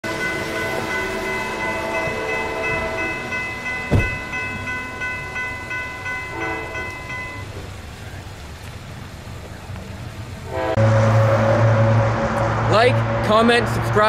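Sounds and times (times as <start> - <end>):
train horn: 0.0 - 3.5, 6.2 - 7.1, 10.4 - 13.9
crossing bell ringing: 0.0 - 7.8
sharp thump: 3.9 - 4.3.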